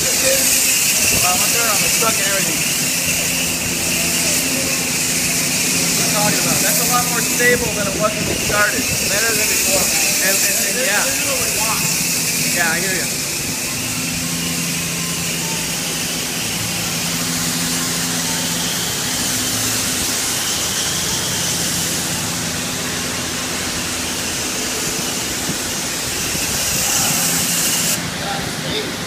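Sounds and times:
spray wand hissing: 0.0s - 28.0s
low machine hum: 0.0s - 29.0s.

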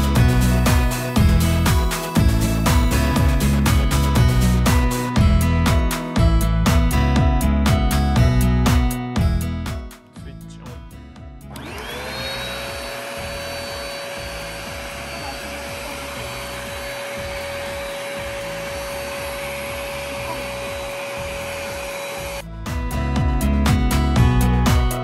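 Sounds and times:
suction motor running: 0.0s - 5.1s, 11.5s - 22.4s.

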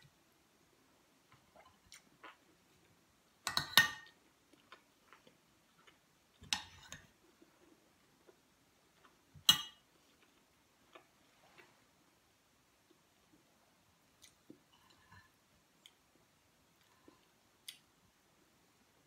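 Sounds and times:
cutlery clinking against a plate: 3.4s - 4.2s, 9.4s - 9.9s.

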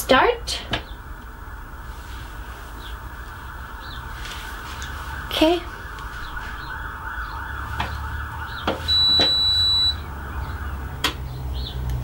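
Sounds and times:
washing machine electronic beep: 8.6s - 10.0s.

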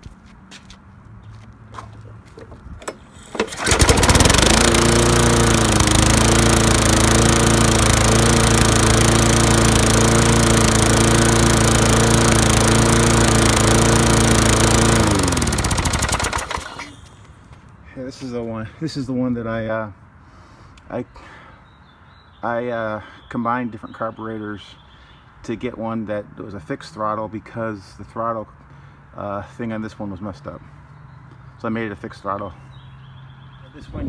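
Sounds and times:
lawn mower engine running: 2.8s - 17.1s.

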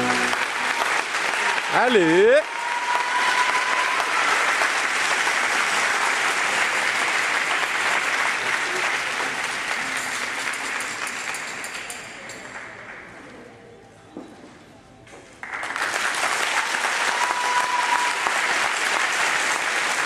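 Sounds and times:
audience applauding: 0.0s - 12.0s, 15.4s - 20.0s.

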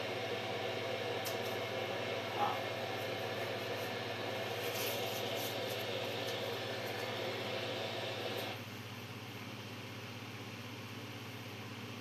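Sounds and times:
radio static hiss: 0.0s - 8.6s.

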